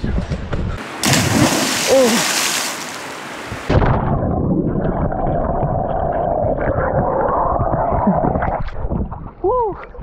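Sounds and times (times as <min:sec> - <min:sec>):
muffled underwater bubbles: 0:04.0 - 0:09.3.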